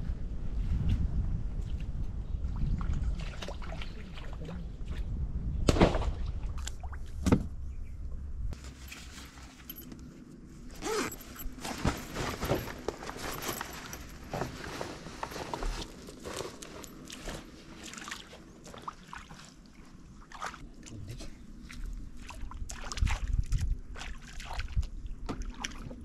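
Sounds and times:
wind rumbling on microphone: 0.0s - 8.6s, 20.9s - 26.0s
nylon bag rustling: 10.6s - 17.9s.

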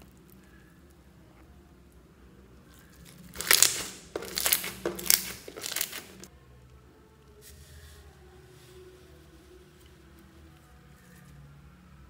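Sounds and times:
slime with beads squeezed: 3.0s - 6.3s.

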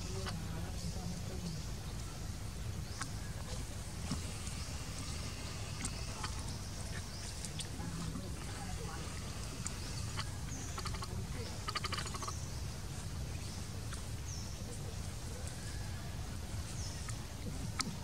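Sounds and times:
low forest rumble: 0.0s - 18.0s
short rattling call: 9.0s - 12.4s.

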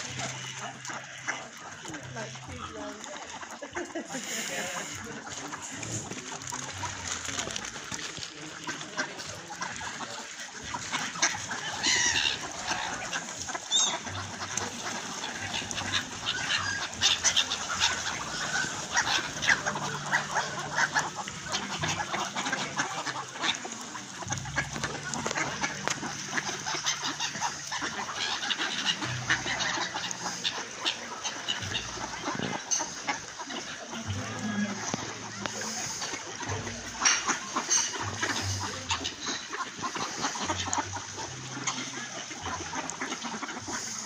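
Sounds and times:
ducks quacking: 0.0s - 44.0s
gull calls: 10.9s - 44.0s.

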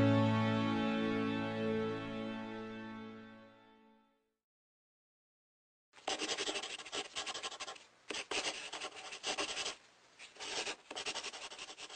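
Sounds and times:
pen scratching on paper: 6.0s - 11.9s.

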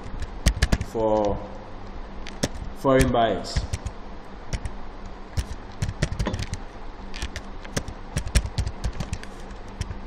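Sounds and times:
keyboard key clicks: 0.2s - 1.3s, 5.4s - 6.6s, 7.2s - 10.0s.

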